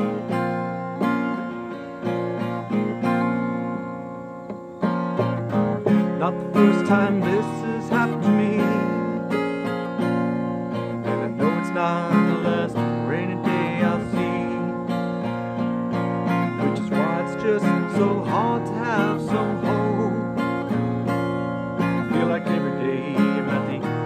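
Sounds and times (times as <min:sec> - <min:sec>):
acoustic guitar strumming: 0:00.0 - 0:24.0
man singing: 0:06.1 - 0:09.5, 0:10.9 - 0:15.4, 0:16.0 - 0:20.7, 0:21.8 - 0:24.0.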